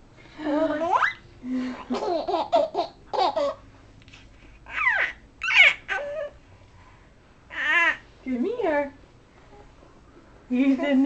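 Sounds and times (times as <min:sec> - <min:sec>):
baby giggling and squealing: 0:04.7 - 0:06.4.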